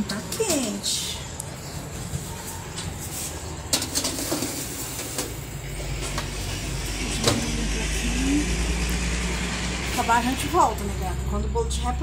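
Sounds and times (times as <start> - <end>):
metal tin clattering on oven rack: 3.7 - 5.4.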